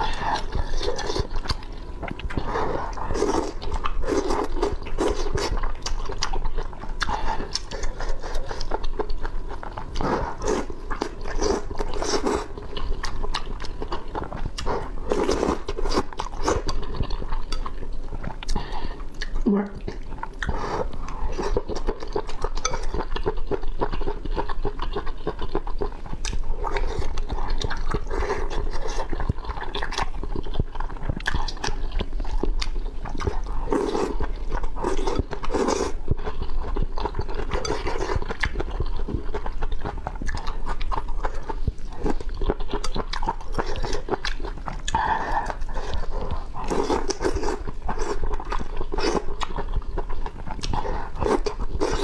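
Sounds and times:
slurping and chewing noodles: 0.0s - 52.0s.

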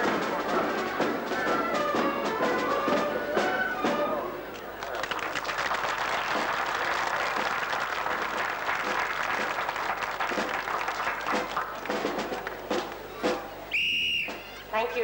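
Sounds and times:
crowd applauding: 1.4s - 13.1s.

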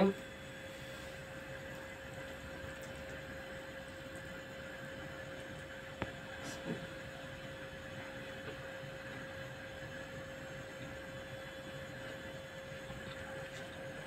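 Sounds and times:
steady electrical hum: 0.0s - 14.0s.

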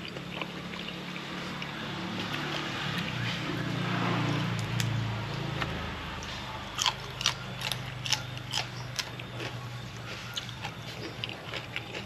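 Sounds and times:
vehicle engine passing: 0.0s - 11.0s
faint chewing clicks: 6.8s - 12.0s.

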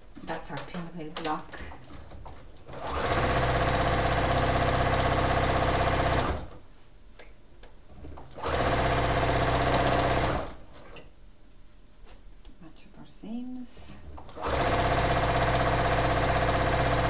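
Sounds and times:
sewing machine stitching: 1.9s - 6.6s, 8.2s - 10.6s, 14.2s - 17.0s.

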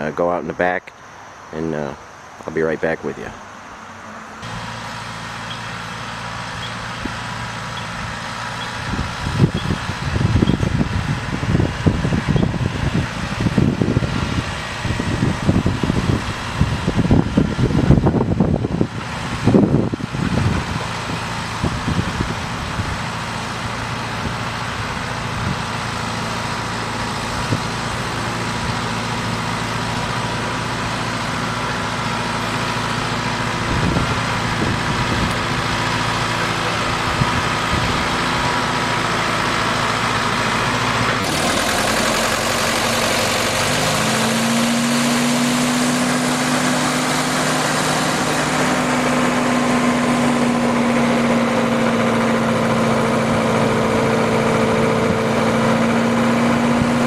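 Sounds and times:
tractor engine running: 0.0s - 57.0s
jeep engine idling: 1.6s - 57.0s
wind buffeting microphone: 8.8s - 23.2s, 33.3s - 38.7s.

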